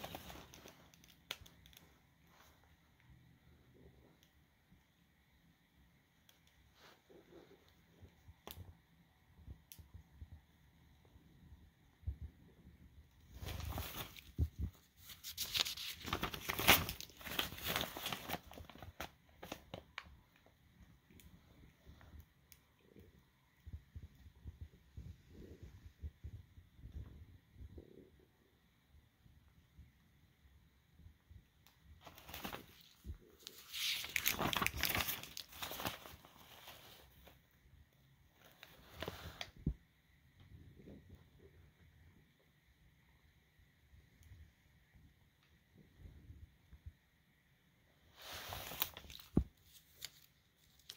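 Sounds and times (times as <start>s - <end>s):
paper pages rustling: 0.0s - 2.6s, 13.3s - 20.1s, 32.0s - 37.4s, 48.2s - 50.9s.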